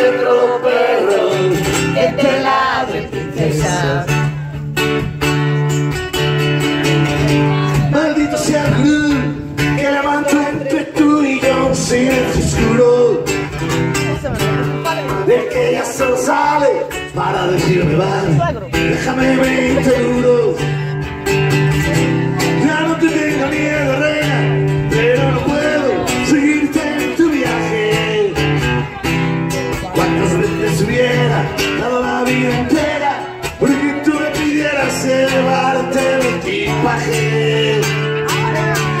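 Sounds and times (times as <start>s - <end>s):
acoustic guitar over loudspeakers: 0.0s - 39.0s.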